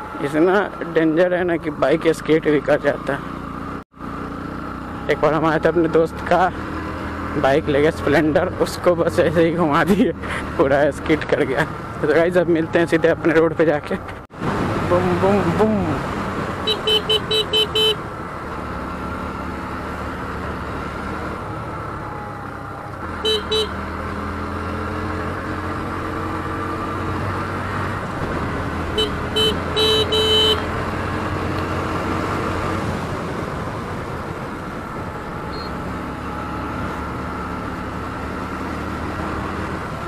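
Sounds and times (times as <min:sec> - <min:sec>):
horn short toots: 0:16.6 - 0:18.0, 0:23.2 - 0:23.8, 0:29.0 - 0:30.7.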